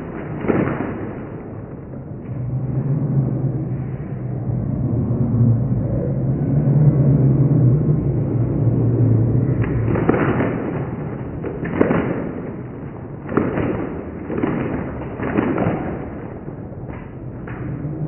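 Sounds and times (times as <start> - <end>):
sharp cracks: 0.0 - 2.4, 9.4 - 18.0.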